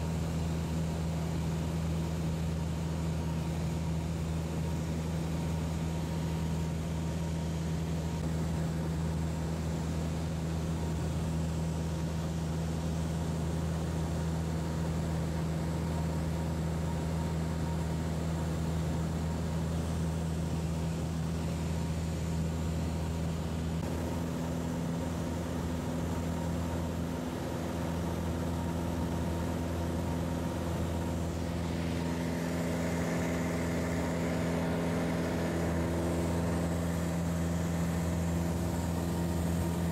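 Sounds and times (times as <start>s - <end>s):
aircraft engine droning in cabin: 0.0s - 39.9s.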